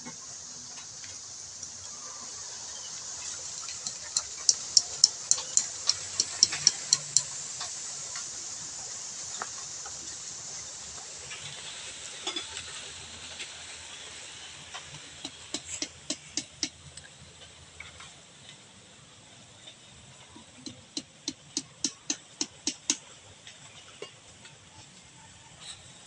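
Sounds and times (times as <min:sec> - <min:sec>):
steady high hiss: 0:00.0 - 0:26.0
hammer strikes on wooden block: 0:20.7 - 0:23.0.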